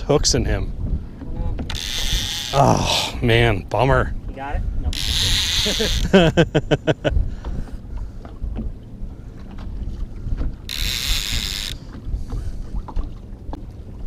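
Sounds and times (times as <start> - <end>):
water slapping boat hull: 0.0 - 14.0
wind buffeting microphone: 0.0 - 14.0
fishing reel ticking: 1.7 - 2.6, 4.9 - 6.2, 10.7 - 11.8.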